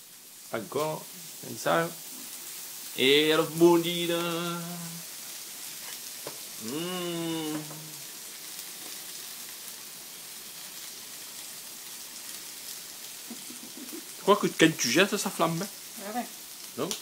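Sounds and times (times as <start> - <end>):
prawns sizzling in frying pan: 0.0 - 17.0
man holding a long note: 6.6 - 8.1.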